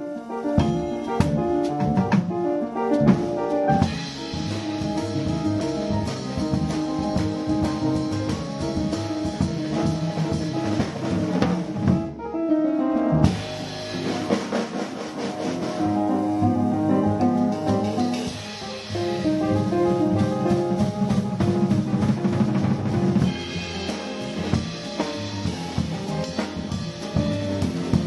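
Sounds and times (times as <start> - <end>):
jazz piano trio playing: 0.0 - 28.0
busy cymbals: 0.6 - 1.7, 3.8 - 10.8, 17.4 - 19.9.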